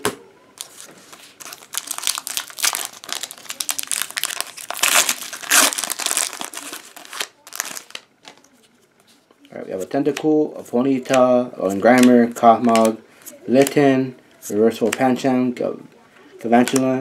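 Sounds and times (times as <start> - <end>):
foil wrapper crinkling and tearing: 0.6 - 8.4.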